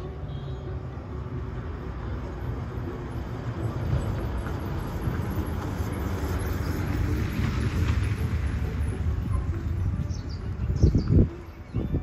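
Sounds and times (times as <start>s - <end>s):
passing vehicles rumbling: 0.0s - 12.0s.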